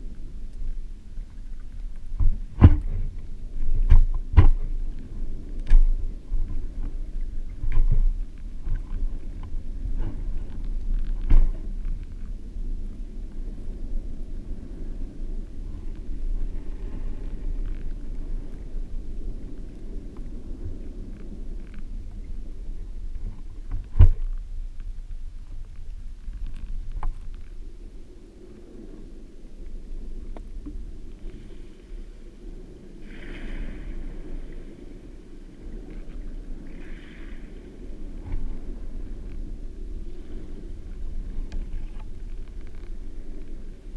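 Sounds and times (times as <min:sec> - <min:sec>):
faint ticks: 0:00.0 - 0:12.9, 0:19.3 - 0:22.4, 0:23.1 - 0:27.8, 0:29.6 - 0:31.6, 0:35.8 - 0:43.8
muffled underwater surf rumble: 0:00.0 - 0:43.9.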